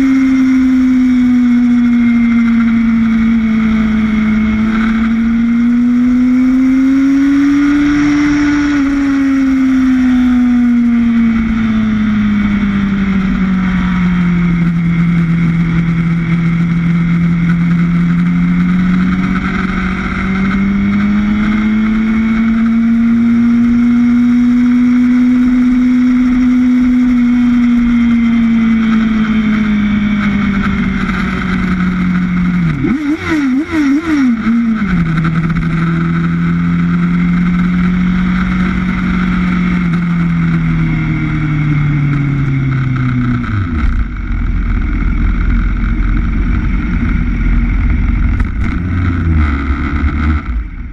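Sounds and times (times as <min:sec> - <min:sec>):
motorcycle engine revving: 0:00.0 - 0:50.9
wind rush: 0:06.8 - 0:14.6.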